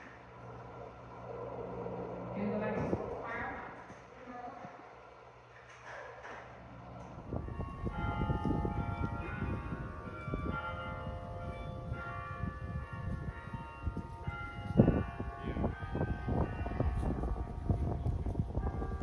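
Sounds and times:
heavy low rumble: 0.0 - 5.2, 6.7 - 19.0
bells ringing: 7.0 - 19.0.

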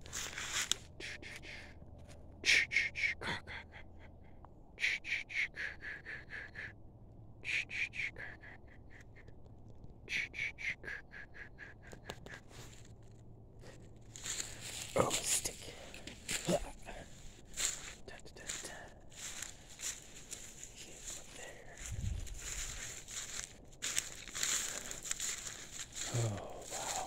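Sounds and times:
bird calling in rapid notes: 10.1 - 12.5.

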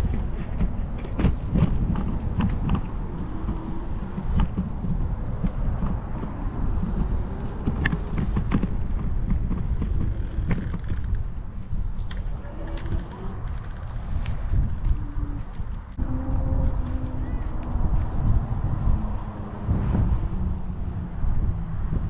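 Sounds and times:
handlebar rattles and clicks: 0.0 - 16.0
road rumble: 0.0 - 22.0
wind buffeting microphone: 0.0 - 22.0.

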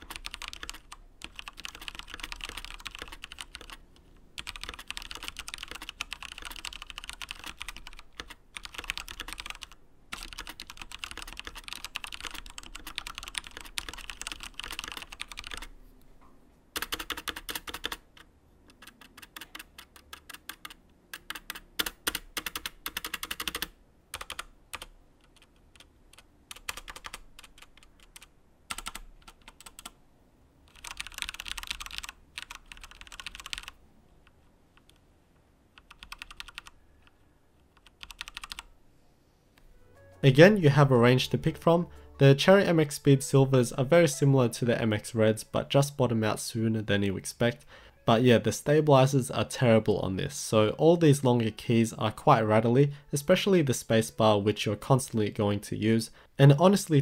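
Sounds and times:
mechanical keyboard typing: 0.0 - 3.8, 4.4 - 15.7, 16.8 - 30.0, 30.7 - 33.8, 35.7 - 36.8, 37.6 - 38.7.

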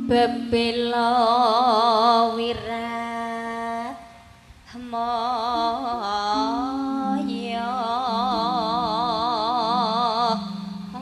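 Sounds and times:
woman singing with vibrato: 0.0 - 11.0
low steady instrumental notes: 4.8 - 11.0.

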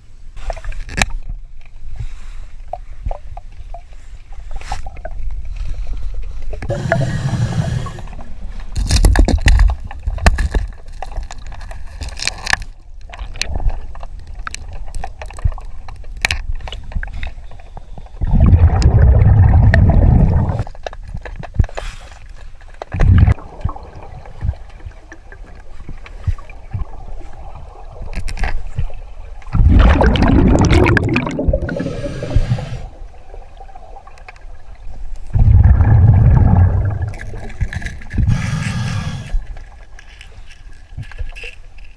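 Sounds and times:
clicks and scrapes underwater: 0.4 - 32.9, 34.0 - 41.9
exhaled bubbles rushing: 18.2 - 20.7, 23.0 - 25.4, 29.5 - 34.2, 35.3 - 38.4
regulator inhalation hiss: 31.7 - 33.0, 38.3 - 39.4.

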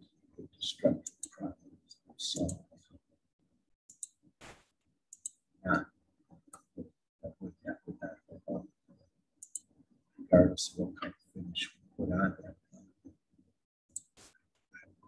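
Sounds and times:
computer mouse clicking: 1.0 - 1.4, 3.9 - 4.1, 5.1 - 5.4, 9.4 - 9.6, 14.0 - 14.4.

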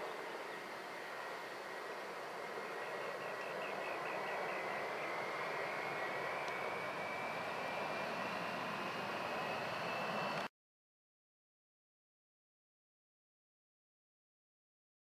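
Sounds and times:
jet engines at climb power: 0.0 - 10.5.

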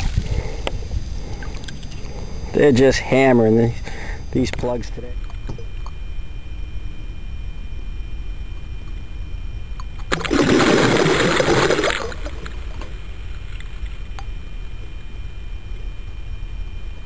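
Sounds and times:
fish splash at water surface: 10.1 - 13.0.

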